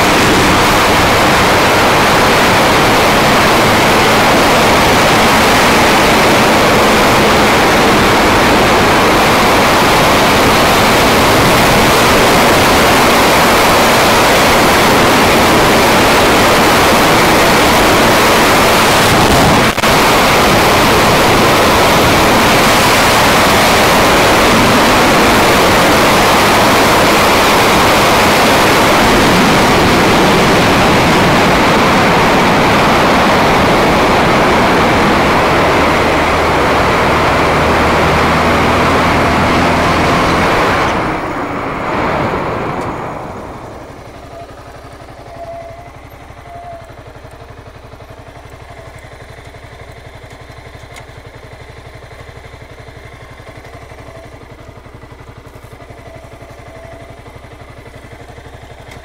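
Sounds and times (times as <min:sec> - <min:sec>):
wind rushing on microphone: 0:00.0 - 0:45.1.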